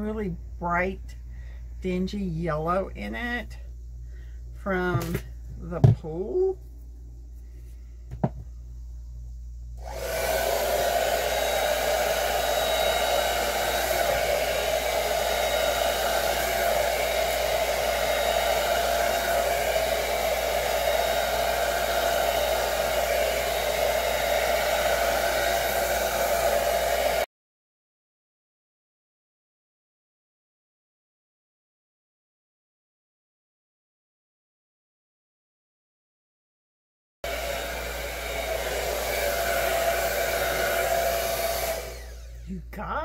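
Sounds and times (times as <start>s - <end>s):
hair dryer running: 9.8s - 27.3s, 37.2s - 43.0s.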